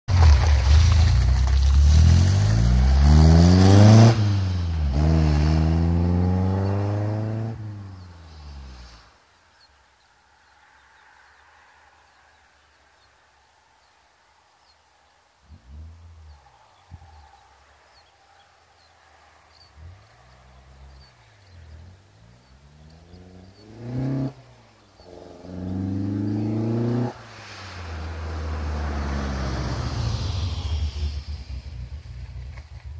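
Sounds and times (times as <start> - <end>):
car engine accelerating hard: 0.4 - 8.8, 19.5 - 32.7.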